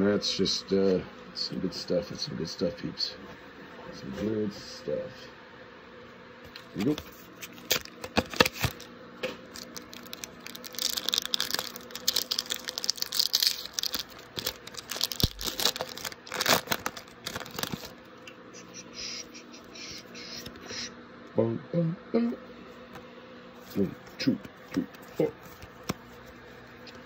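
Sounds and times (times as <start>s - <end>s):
foil wrapper tearing and crinkling: 6.8s - 18.0s.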